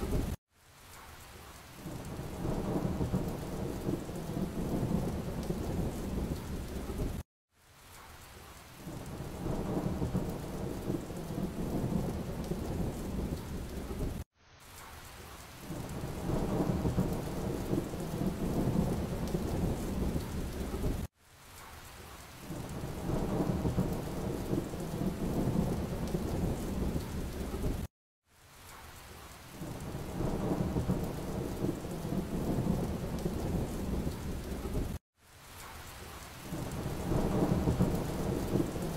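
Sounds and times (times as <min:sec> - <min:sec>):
rain: 0:00.0 - 0:38.9
low rumbling thunder: 0:01.9 - 0:07.2, 0:08.9 - 0:14.2, 0:15.7 - 0:21.1, 0:22.5 - 0:27.9, 0:29.6 - 0:35.0, 0:36.5 - 0:38.9.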